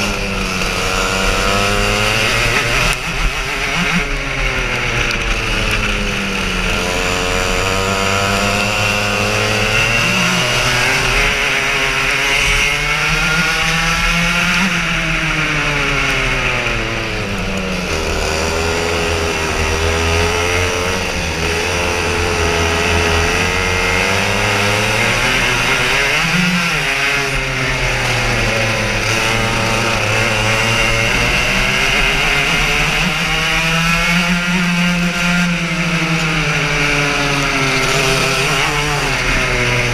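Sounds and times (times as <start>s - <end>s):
kart engine accelerating: 0.0s - 39.9s.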